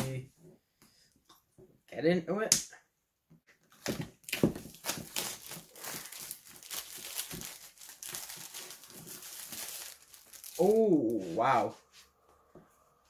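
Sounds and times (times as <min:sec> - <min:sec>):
plastic wrapping crinkling and tearing: 0:03.7 - 0:11.0.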